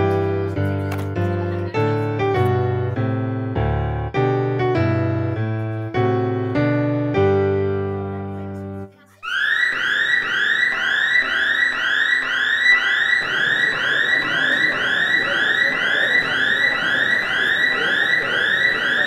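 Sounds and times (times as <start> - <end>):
electronic alarm siren whooping: 9.2 - 19.0.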